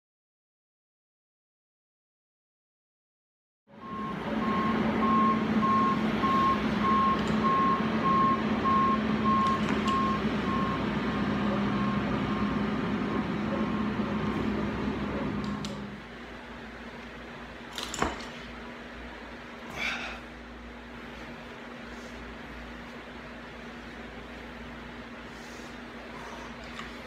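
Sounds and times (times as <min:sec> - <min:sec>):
engine rumble: 0:03.7 - 0:27.0
reversing alarm beeping: 0:03.8 - 0:15.4.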